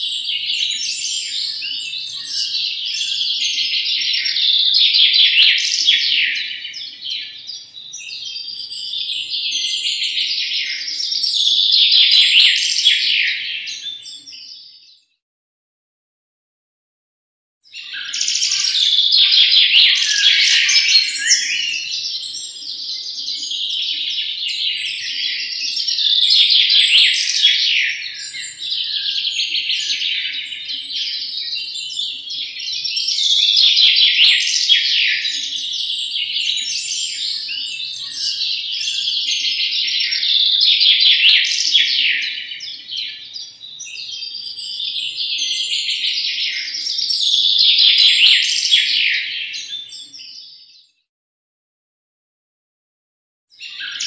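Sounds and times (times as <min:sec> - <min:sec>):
goldfinches twittering song: 0:17.7 - 0:50.8.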